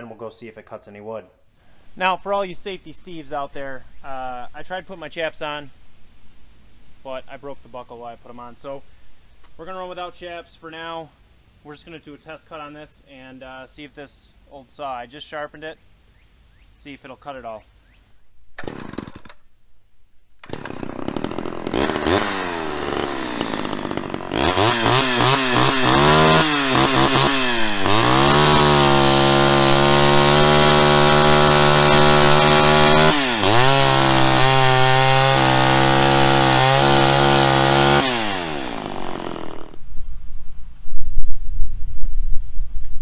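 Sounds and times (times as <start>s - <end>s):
chainsaw revving and cutting log: 18.6s - 19.3s, 20.4s - 39.8s.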